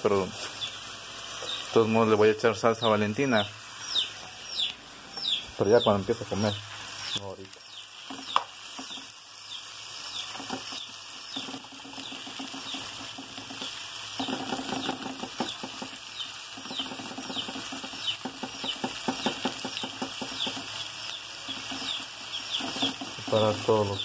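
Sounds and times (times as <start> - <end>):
food sizzling in a frying pan: 0.0 - 24.0
knife scraping a pan: 21.4 - 23.3.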